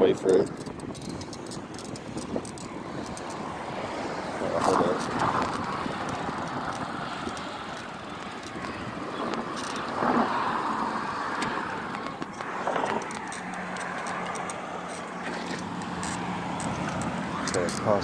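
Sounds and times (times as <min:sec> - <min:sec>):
car traffic passing: 0:00.0 - 0:18.0
wind on microphone: 0:00.0 - 0:18.0
tyres rolling over pavement: 0:02.7 - 0:18.0.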